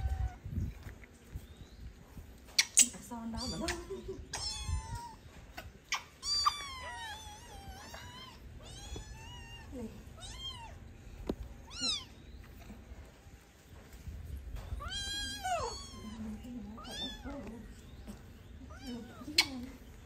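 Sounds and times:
kittens meowing: 0.0 - 0.5, 3.3 - 11.0, 11.6 - 12.6, 14.7 - 19.8.

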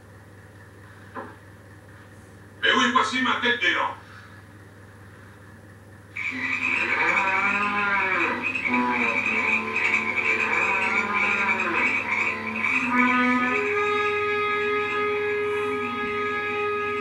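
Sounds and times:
frogs croaking and trilling: 6.1 - 17.0.

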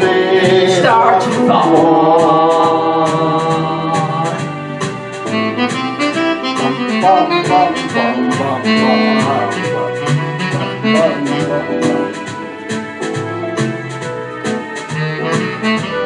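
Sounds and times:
man singing: 0.0 - 4.8, 6.5 - 12.2
drum machine beat: 0.0 - 16.0
digital keyboard slow tune: 3.8 - 16.0.

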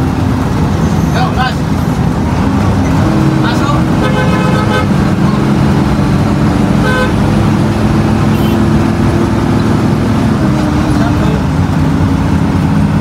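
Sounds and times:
bus engine running: 0.0 - 13.0.

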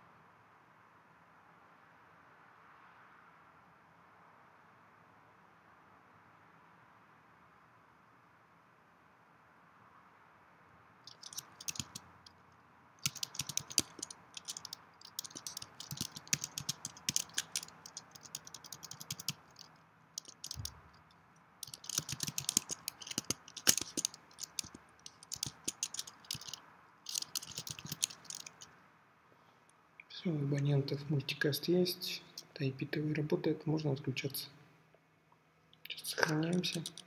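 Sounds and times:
typing on computer keyboard: 11.1 - 12.0, 13.0 - 20.9, 21.6 - 28.7, 36.2 - 37.0.

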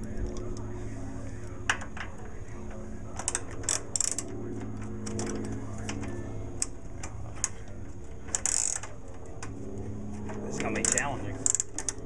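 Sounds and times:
steady low hum: 0.0 - 12.0
wrench clicking on a bolt: 8.3 - 8.9, 10.8 - 12.0.

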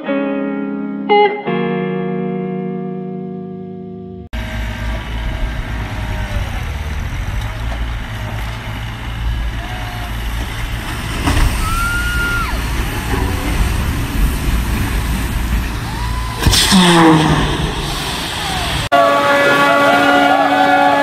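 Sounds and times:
boat hull sliding on rollers: 4.4 - 21.0.

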